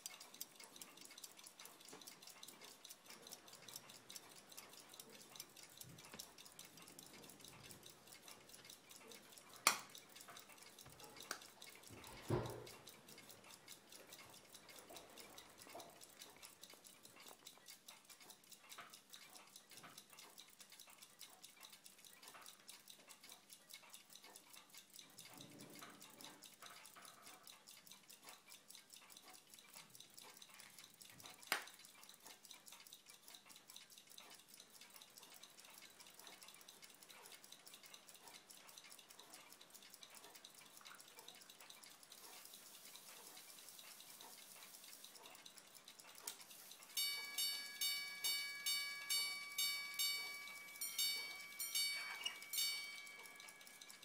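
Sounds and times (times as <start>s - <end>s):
watch ticking: 0.0s - 54.0s
sharp click: 9.6s - 10.0s.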